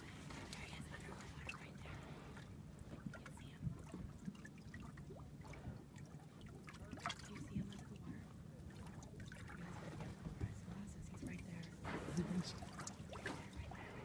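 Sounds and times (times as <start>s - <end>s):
water lapping against boat: 0.0s - 14.0s.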